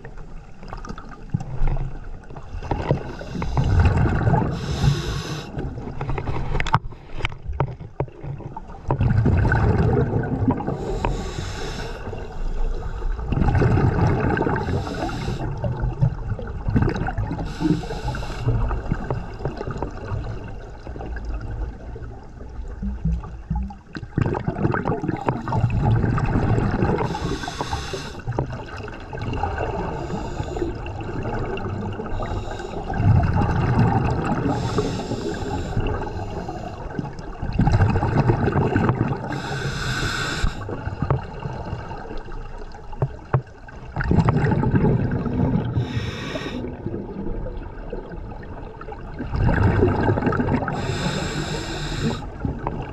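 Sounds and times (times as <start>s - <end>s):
gurgling exhaled bubbles: 0.0s - 6.7s, 8.1s - 52.9s
hissing regulator inhalations: 3.0s - 3.9s, 4.5s - 5.6s, 10.8s - 12.3s, 14.6s - 15.5s, 17.4s - 18.7s, 27.0s - 28.3s, 29.9s - 30.8s, 32.1s - 33.0s, 34.5s - 36.9s, 39.2s - 40.8s, 45.8s - 46.7s, 50.7s - 52.4s.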